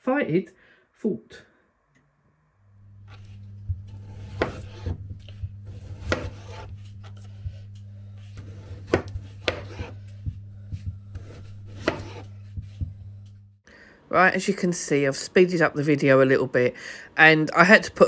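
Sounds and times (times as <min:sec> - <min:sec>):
steady low hum: 0:02.4 - 0:13.9
knife chopping on cutting board: 0:03.1 - 0:13.2.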